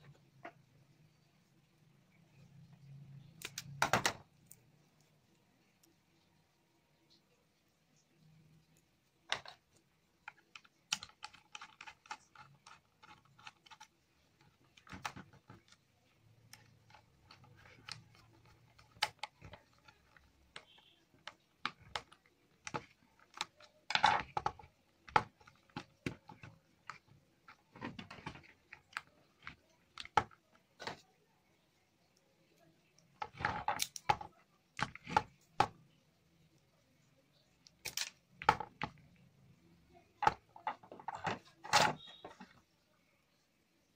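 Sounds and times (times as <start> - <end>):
clicks and taps on plastic: 10.2 - 31.1, 33.0 - 36.0.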